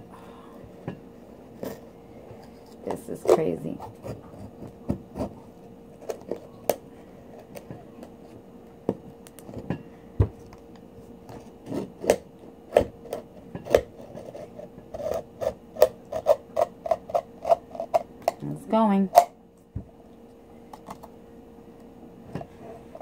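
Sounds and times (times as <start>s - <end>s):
knife scraping oyster shell: 13.1s - 18.0s.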